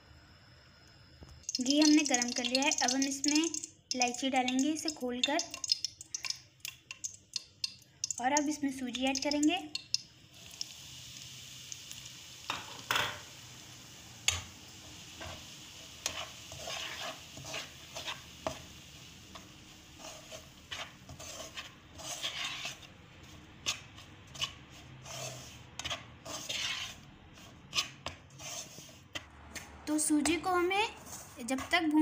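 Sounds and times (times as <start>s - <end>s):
faint frying sizzle: 0.0s - 29.2s
spatula scraping in pan: 15.1s - 29.3s, 30.9s - 32.0s.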